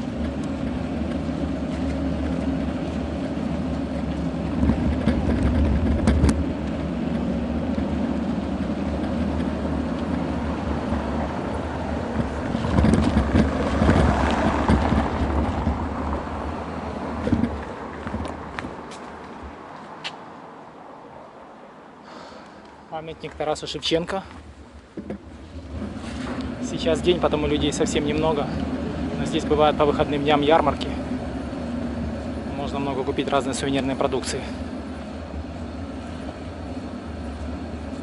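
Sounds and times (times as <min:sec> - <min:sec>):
wind noise on microphone: 0:00.0 - 0:19.6
bicycle rumbling over paving stones: 0:00.0 - 0:19.7, 0:23.1 - 0:38.0.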